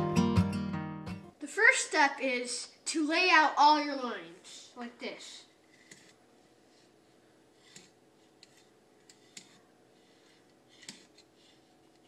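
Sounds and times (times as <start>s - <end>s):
pencil scratching on wood: 5.7s - 12.0s.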